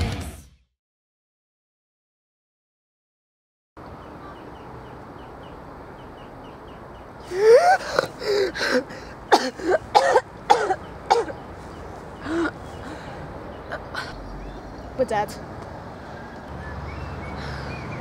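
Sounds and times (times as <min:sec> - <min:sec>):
woman coughing: 0:09.3 - 0:11.4.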